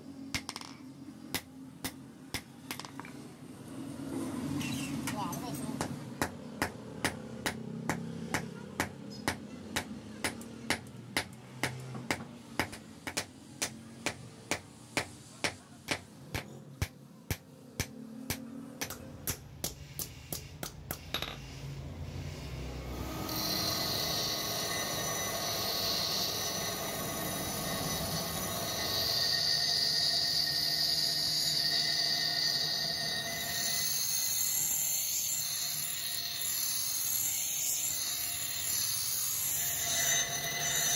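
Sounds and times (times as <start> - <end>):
hammer striking steel on anvil: 5.0 - 21.4
grinding wheel grinding steel: 21.0 - 40.9.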